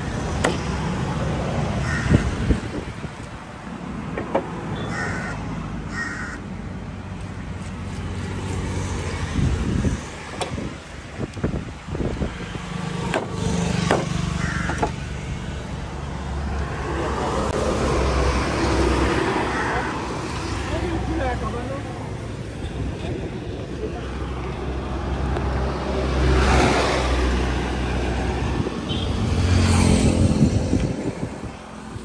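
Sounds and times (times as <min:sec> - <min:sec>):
traffic hum: 0:00.0 - 0:32.0
truck engine passing: 0:12.6 - 0:22.3
machete knocking on wooden block: 0:13.1 - 0:15.0.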